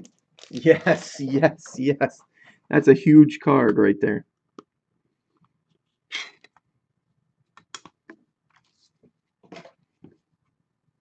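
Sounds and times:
plastic rustling: 0.0s - 1.4s.

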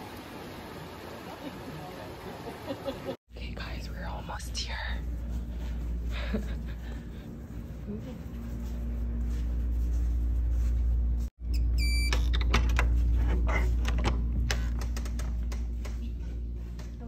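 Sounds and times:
low hum: 3.3s - 17.0s
door lock electronic beep: 11.5s - 12.5s.

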